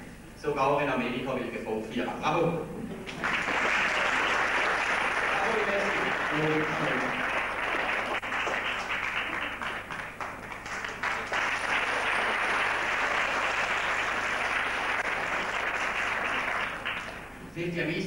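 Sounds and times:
audience applauding: 0:03.0 - 0:17.3.

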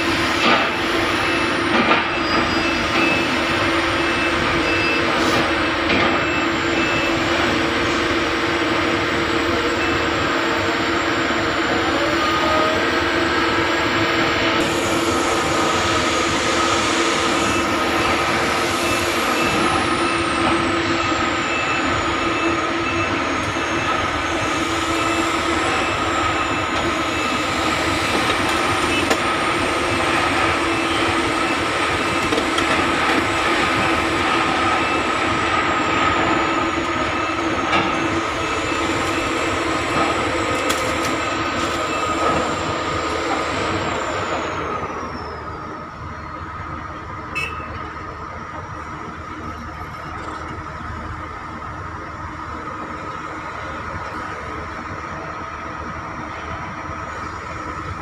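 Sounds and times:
heavy diesel machinery running: 0:00.0 - 0:58.0.

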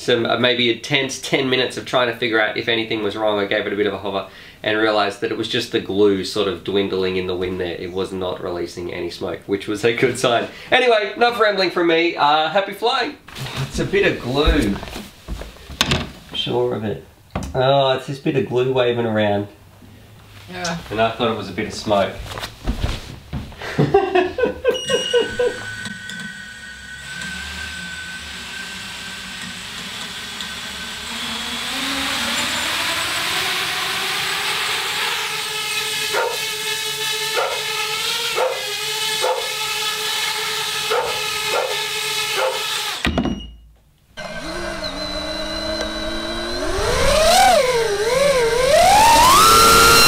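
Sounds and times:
quadcopter motors whining: 0:24.8 - 0:43.2, 0:44.2 - 0:50.0.

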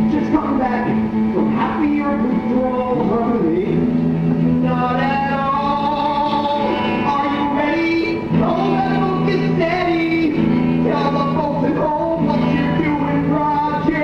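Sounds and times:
electric guitar playing: 0:00.0 - 0:14.0.

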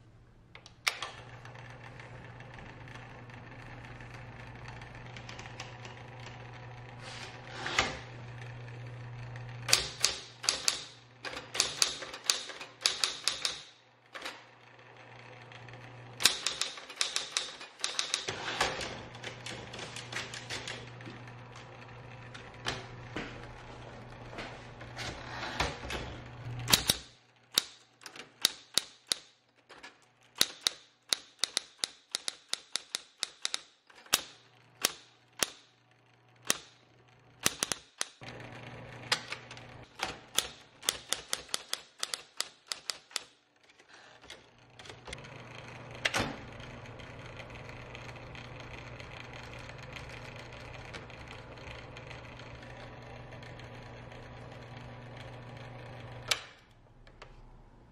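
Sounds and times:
typewriter motor hum: 0:00.5 - 0:57.9
typewriter typebar strikes: 0:09.7 - 0:13.8, 0:16.2 - 0:20.9, 0:26.7 - 0:29.3, 0:37.4 - 0:38.2, 0:40.0 - 0:43.3.

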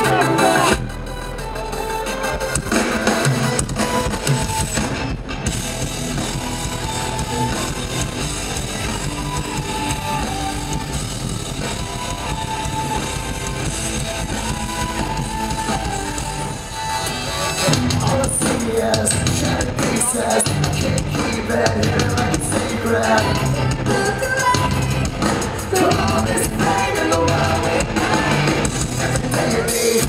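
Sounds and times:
loud rock music over stage speakers: 0:00.0 - 0:30.0.

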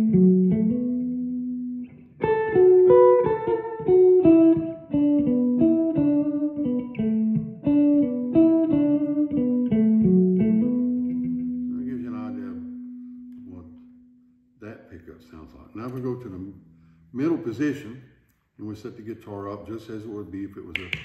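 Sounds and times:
electric guitar melodic phrases: 0:00.0 - 0:14.6.

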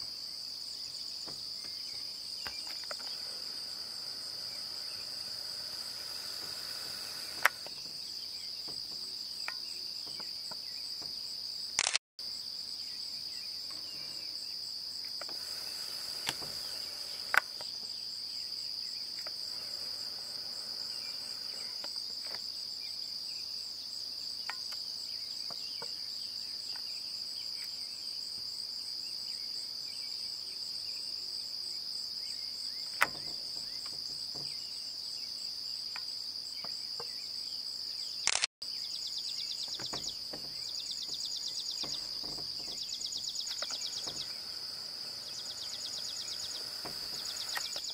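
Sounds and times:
crickets trilling: 0:00.0 - 0:47.9
sharp clicks: 0:05.0 - 0:07.8, 0:11.8 - 0:12.0, 0:16.0 - 0:17.7, 0:38.2 - 0:38.5, 0:41.8 - 0:47.9.

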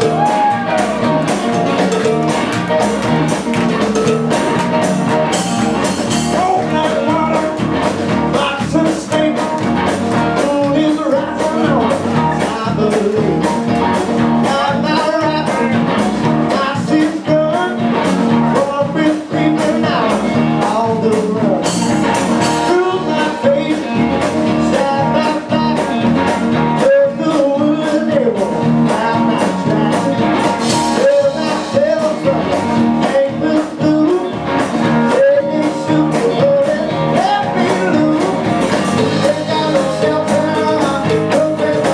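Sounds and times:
person singing: 0:00.0 - 0:02.4, 0:05.3 - 0:13.7, 0:14.4 - 0:15.8, 0:16.4 - 0:17.9, 0:18.5 - 0:26.1, 0:26.8 - 0:41.9
blues-rock band playing live: 0:00.0 - 0:41.9.

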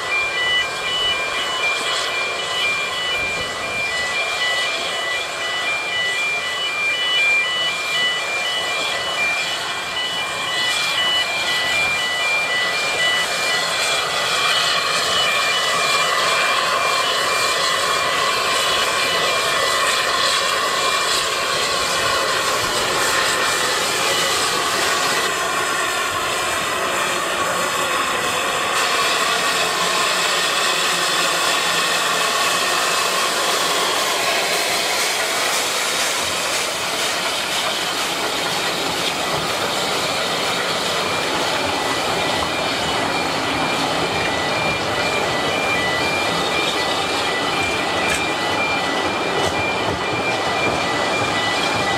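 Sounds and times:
electronic beeping: 0:00.0 - 0:18.4
steam hissing: 0:00.0 - 0:51.9
steam train running slowly: 0:00.0 - 0:51.9
road traffic noise: 0:20.8 - 0:51.9.

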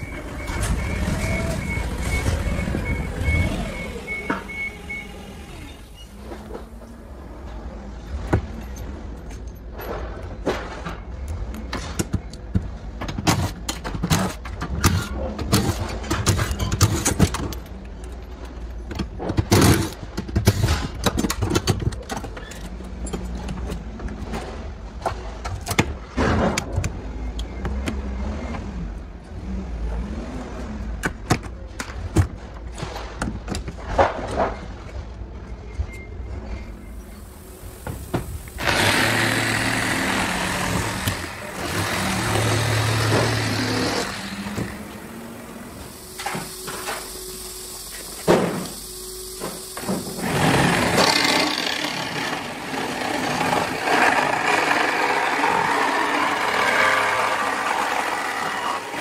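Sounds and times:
cordless drill whirring: 0:38.5 - 0:59.0.

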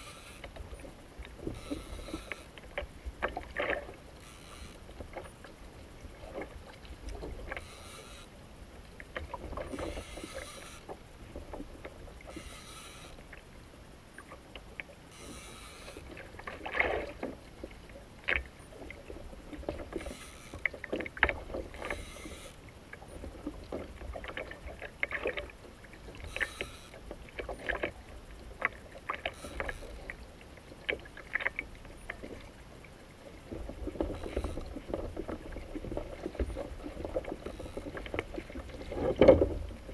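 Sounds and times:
fishing reel clicking: 0:00.0 - 0:00.6, 0:01.5 - 0:02.6, 0:04.2 - 0:05.0, 0:07.5 - 0:08.4, 0:09.7 - 0:11.0, 0:12.3 - 0:13.3, 0:15.1 - 0:16.2, 0:19.9 - 0:20.7, 0:21.7 - 0:22.6, 0:26.2 - 0:27.0, 0:29.2 - 0:30.1, 0:34.1 - 0:34.8, 0:37.4 - 0:38.3
water splashing against kayak hull: 0:00.0 - 0:39.9
wind: 0:00.0 - 0:39.9.

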